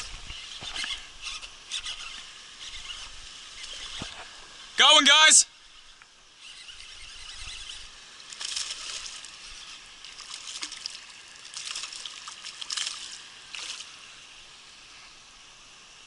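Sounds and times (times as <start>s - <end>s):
fish splashing in water: 6.5s - 14.0s.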